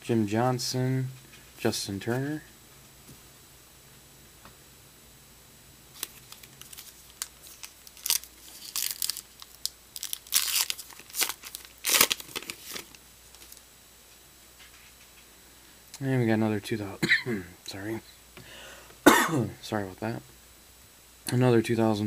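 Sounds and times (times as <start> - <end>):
foil wrapper tearing and crinkling: 5.9 - 13.6.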